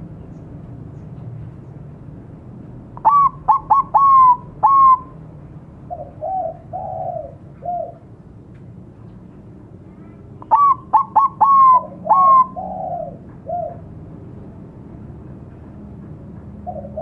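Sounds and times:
dove song notes: 3.0 - 5.2, 5.8 - 8.2, 10.4 - 13.8, 16.6 - 17.0.

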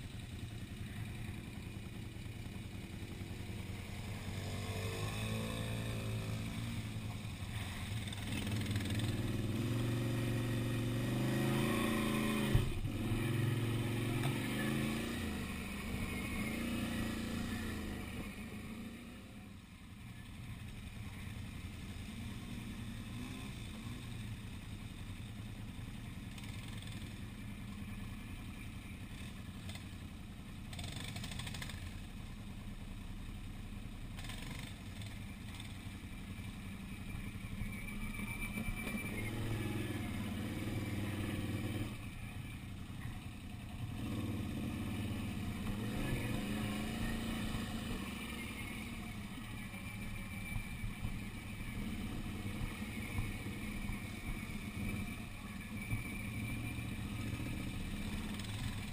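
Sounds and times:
quad bike engine revving: 0.7 - 19.1, 30.7 - 32.0, 34.2 - 35.8, 37.7 - 58.9.

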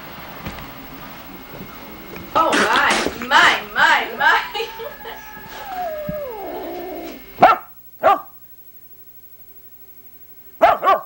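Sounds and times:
puppy whining: 3.8 - 7.4
puppy yapping: 4.2 - 8.3, 10.6 - 11.0.

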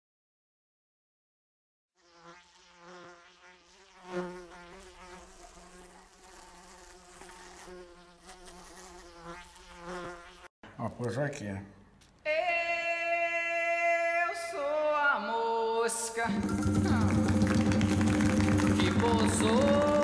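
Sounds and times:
housefly buzzing: 1.9 - 10.6.

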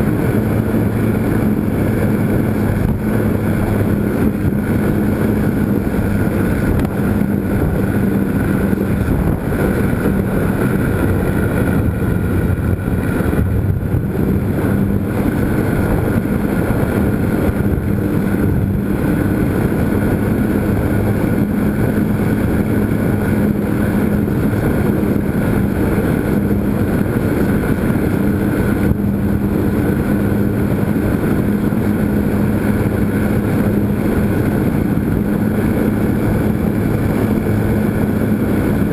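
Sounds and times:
air rushing: 0.0 - 38.9
electric motor and propeller droning: 0.0 - 38.9.

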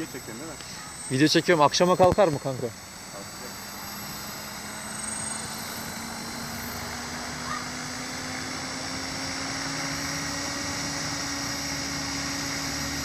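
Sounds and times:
faint high whine: 0.0 - 13.0
rc helicopter motor and rotor hum: 0.0 - 13.0.

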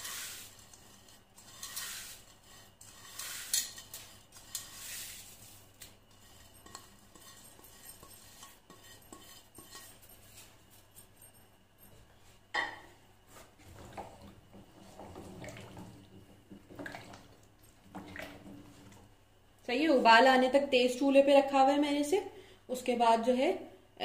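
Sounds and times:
utensil scraping a dish: 0.0 - 11.3.

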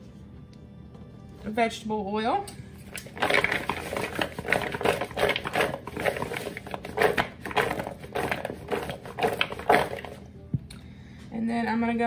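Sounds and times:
vegetables rattling in plastic bowl: 3.0 - 10.2.

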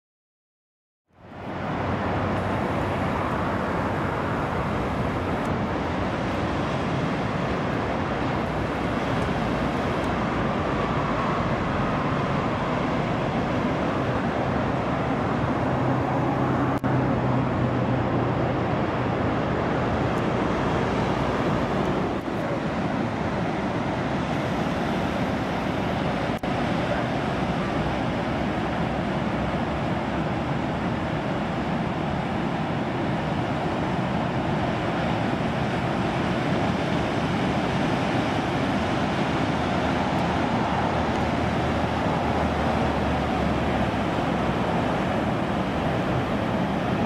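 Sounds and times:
ocean surf roar: 1.1 - 47.0.

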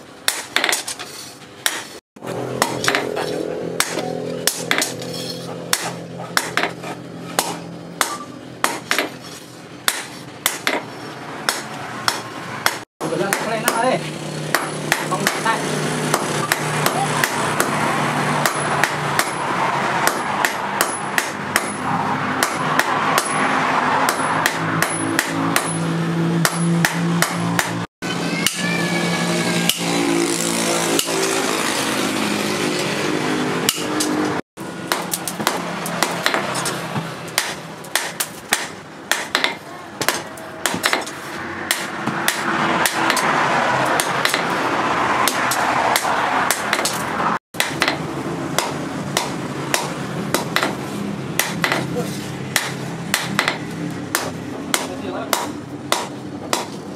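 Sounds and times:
hammer striking metal on anvil: 1.6 - 9.2, 14.4 - 15.5, 18.4 - 21.8, 22.4 - 28.8, 29.6 - 29.9, 33.6 - 34.2, 34.9 - 43.3, 43.9 - 44.5, 47.6 - 50.8, 51.4 - 51.9, 52.5 - 56.8.

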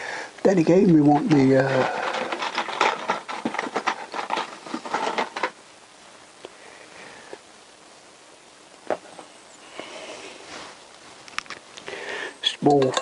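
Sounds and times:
small parts clicking and rustling: 0.7 - 5.6, 11.2 - 13.0.

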